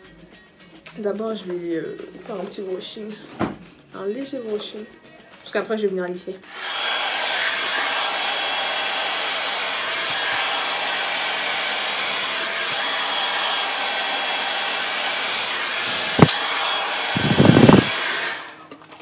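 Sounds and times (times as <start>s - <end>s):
hair dryer running: 6.5s - 18.6s
sharp click: 16.2s - 16.4s.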